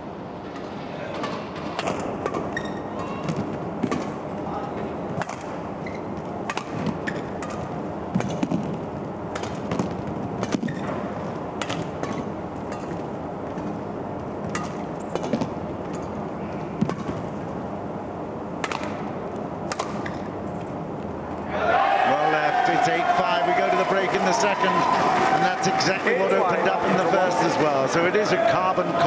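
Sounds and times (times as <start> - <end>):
rackets hitting shuttlecock: 0.5 - 4.3, 5.2 - 13.8, 14.4 - 16.1, 18.6 - 20.3
arena crowd murmur: 21.4 - 29.0.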